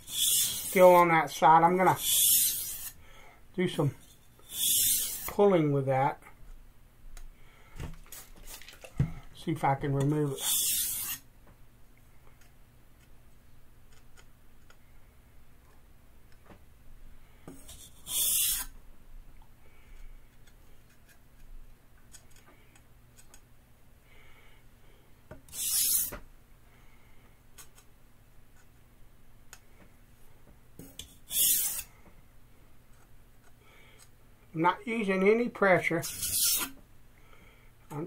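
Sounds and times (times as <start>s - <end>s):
knife scraping on sharpening stone: 0.0s - 1.0s, 1.9s - 3.0s, 4.1s - 5.3s, 10.4s - 11.2s, 17.7s - 18.7s, 25.5s - 26.1s, 30.8s - 31.9s, 36.0s - 36.7s.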